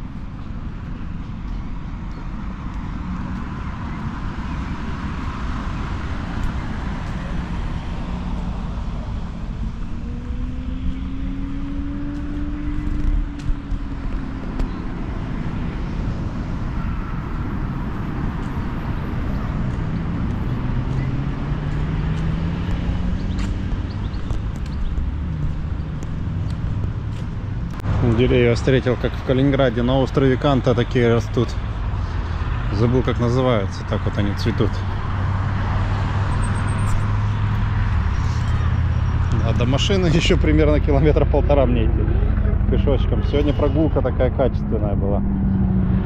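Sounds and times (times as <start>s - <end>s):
cars passing: 0.0s - 46.0s.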